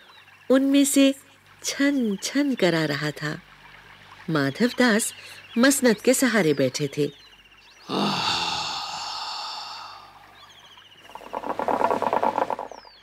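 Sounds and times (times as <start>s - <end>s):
faint bird chirps: 0.0s - 13.0s
man sighing: 7.9s - 10.3s.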